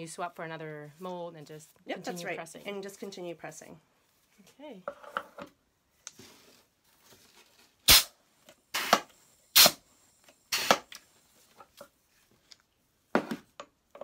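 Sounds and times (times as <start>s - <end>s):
compressed air blasts: 7.9s - 9.8s, 10.5s - 10.9s.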